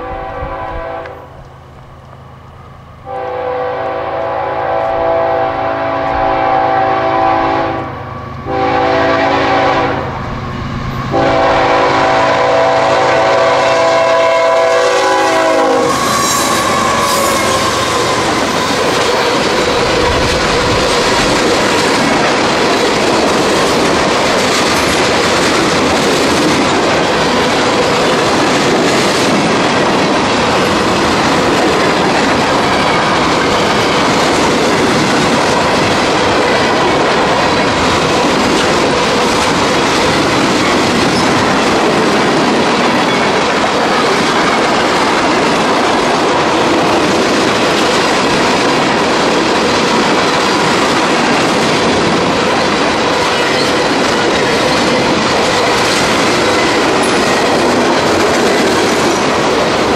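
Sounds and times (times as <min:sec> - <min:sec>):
train air horn blasts: 0:00.0 - 0:01.4, 0:03.0 - 0:10.2, 0:11.1 - 0:20.6
train passing rumble: 0:00.0 - 0:59.9.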